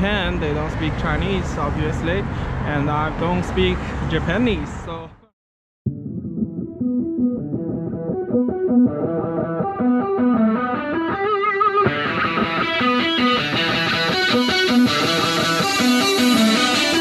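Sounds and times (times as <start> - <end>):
guitar riff: 5.9 - 17.0.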